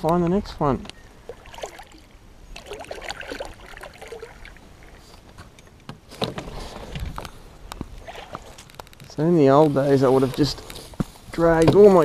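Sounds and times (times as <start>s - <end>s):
water sloshing: 1.0s - 10.6s
knocks and scrapes on kayak hull: 5.1s - 12.0s.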